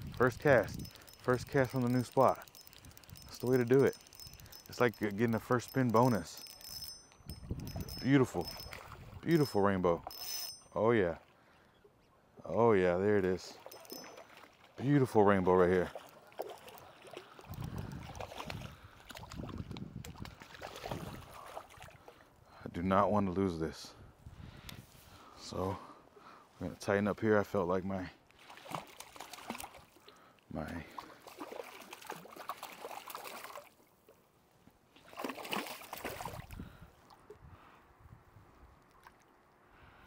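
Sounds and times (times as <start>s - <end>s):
small clicks: 0.0s - 10.6s
river water sloshing and splashing: 8.6s - 9.3s, 13.2s - 22.4s, 28.4s - 30.2s, 30.9s - 34.2s, 34.8s - 37.4s, 38.9s - 39.6s.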